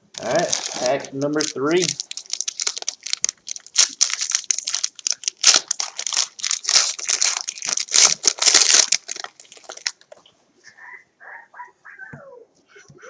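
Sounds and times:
foil wrapper crinkling and tearing: 0:00.1 - 0:10.2.

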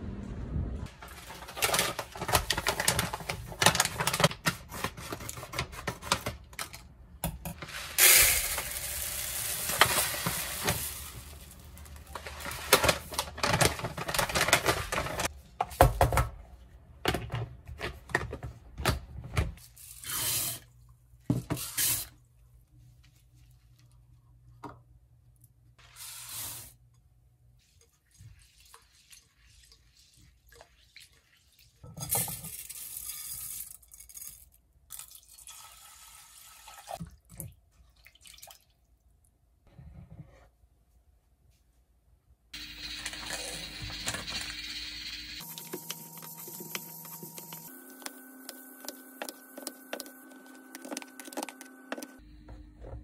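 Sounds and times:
rice pouring into plastic container: 0:07.6 - 0:13.2
running water in sink: 0:42.6 - 0:52.0.

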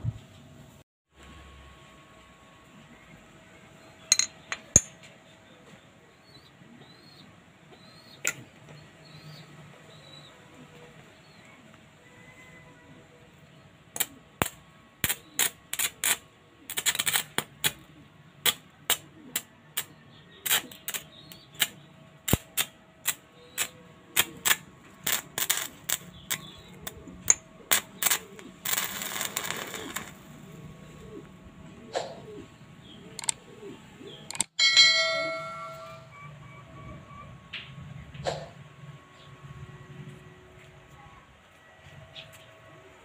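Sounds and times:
electric arc snapping and crackling: 0:14.0 - 0:17.8, 0:18.4 - 0:30.2.

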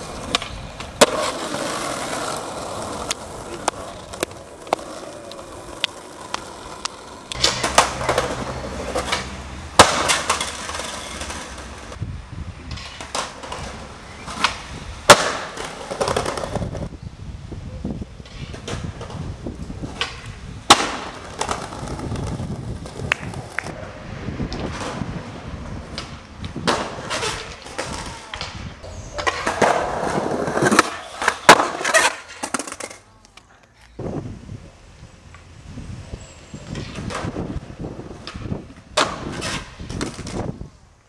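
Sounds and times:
skateboard clacks: 0:00.0 - 0:12.0, 0:12.7 - 0:16.9, 0:19.9 - 0:23.8, 0:25.8 - 0:33.5
skateboard wheels rolling on pavement: 0:00.0 - 0:41.0.

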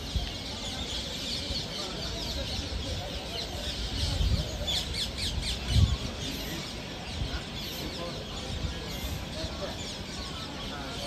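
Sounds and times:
birds chirping and squawking: 0:00.1 - 0:11.0.

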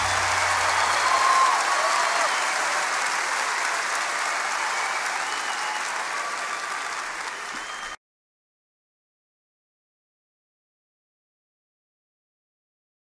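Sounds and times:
audience applause: 0:00.0 - 0:08.0.

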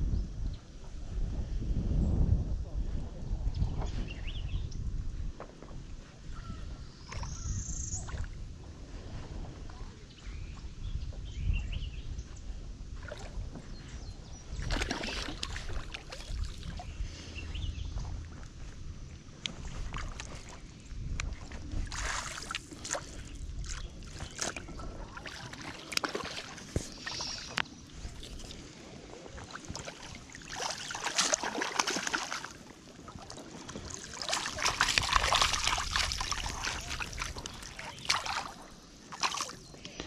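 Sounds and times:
fish splashing in water: 0:14.6 - 0:16.8, 0:29.4 - 0:39.6
water sloshing: 0:14.6 - 0:16.9, 0:19.3 - 0:40.0.

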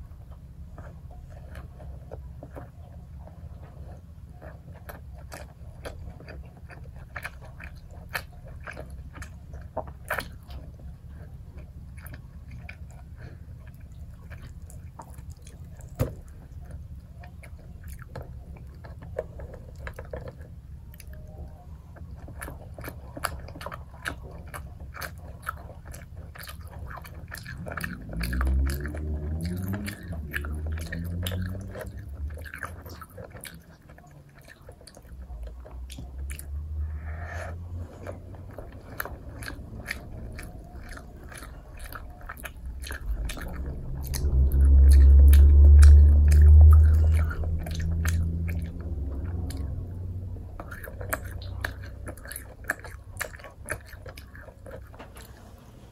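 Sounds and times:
chewing and biting food: 0:00.0 - 0:55.7.

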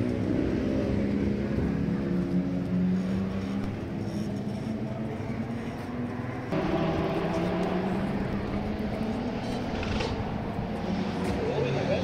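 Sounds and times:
racing car engines: 0:00.0 - 0:12.0.

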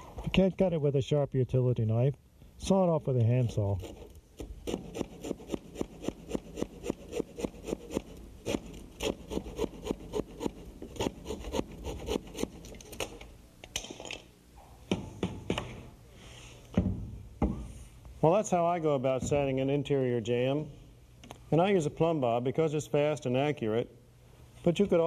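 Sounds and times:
handsaw sawing wood: 0:03.8 - 0:12.6.

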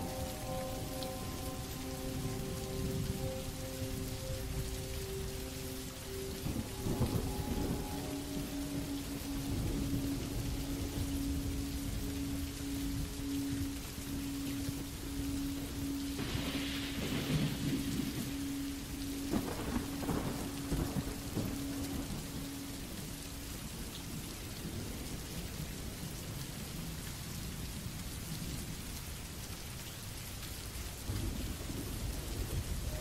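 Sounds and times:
thunder rumbling: 0:00.0 - 0:27.0, 0:31.1 - 0:33.0
heavy rain: 0:00.0 - 0:33.0.

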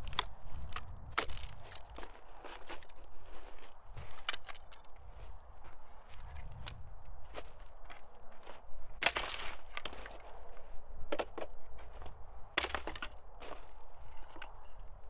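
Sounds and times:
wooden slats snapping: 0:09.0 - 0:10.0, 0:12.6 - 0:13.2
wood pieces knocking and clattering: 0:09.0 - 0:10.2, 0:11.1 - 0:14.6.

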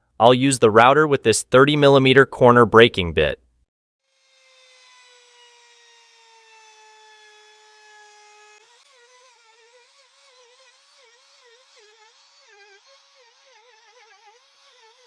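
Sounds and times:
router whining: 0:04.1 - 0:15.0.

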